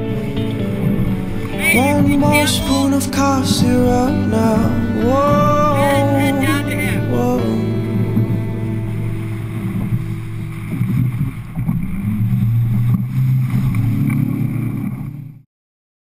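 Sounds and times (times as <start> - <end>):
outboard motor running: 0.0 - 15.4
water splashing: 0.0 - 15.4.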